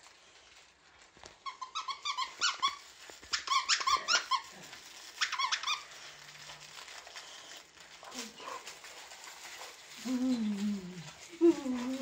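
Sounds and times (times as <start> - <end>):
toy squeaker squeaking: 1.4 - 4.5, 5.2 - 5.9.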